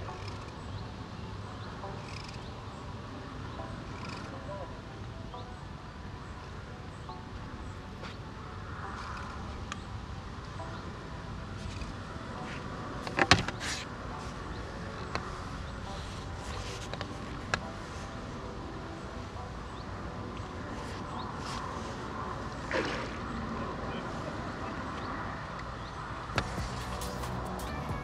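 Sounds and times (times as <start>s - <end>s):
outdoor background rumble: 26.4s - 28.0s.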